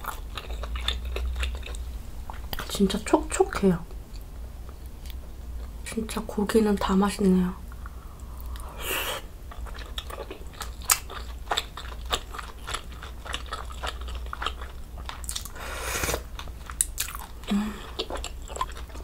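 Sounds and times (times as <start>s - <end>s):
chewing soft meat: 0.0s - 2.7s, 9.4s - 19.0s
slurping broth: 15.6s - 16.3s.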